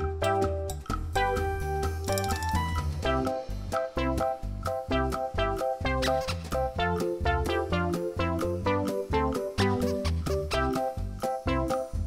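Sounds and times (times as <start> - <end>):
upbeat instrumental music: 0.0 - 12.0.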